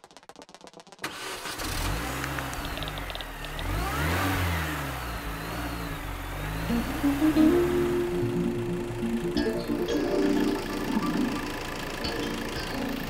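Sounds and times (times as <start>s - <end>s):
car engine revving: 1.1s - 9.4s.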